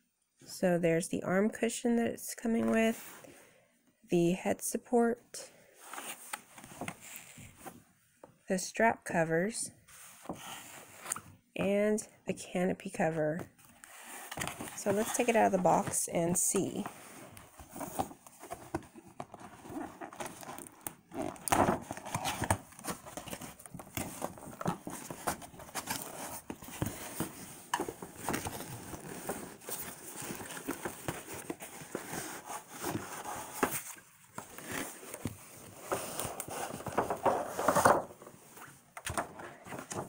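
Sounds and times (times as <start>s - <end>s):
rustling: 13.6s - 40.0s.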